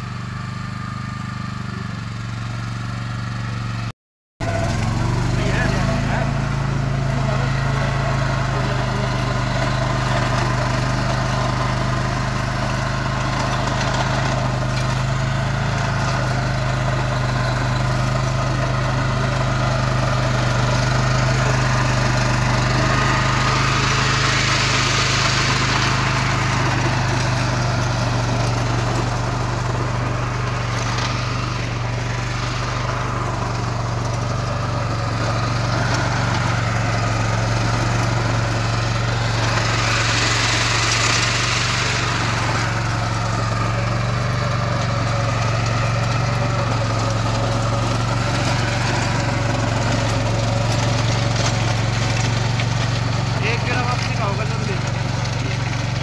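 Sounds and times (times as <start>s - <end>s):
rotary tiller churning soil: 0.0s - 56.0s
tractor diesel engine running: 0.0s - 56.0s.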